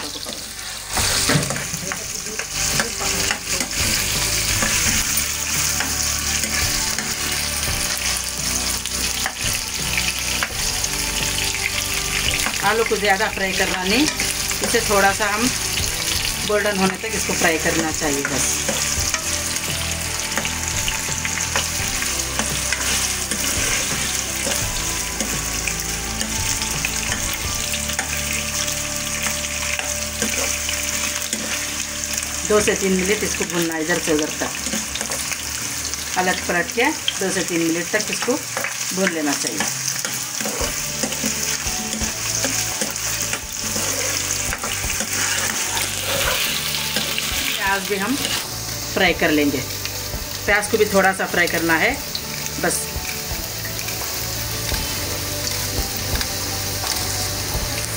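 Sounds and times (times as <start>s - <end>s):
potatoes sizzling in oil: 0.0s - 57.9s
spatula scraping and tapping: 39.6s - 47.2s.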